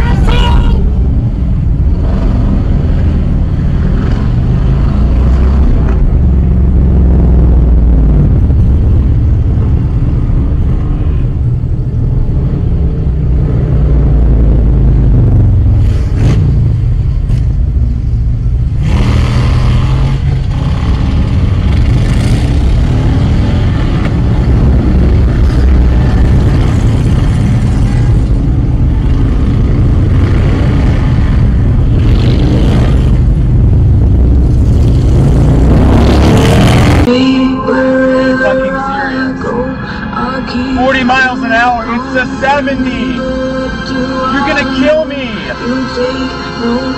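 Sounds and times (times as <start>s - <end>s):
motorcycle engines revving: 0.0s - 37.1s
car engine and road rumble: 0.0s - 46.9s.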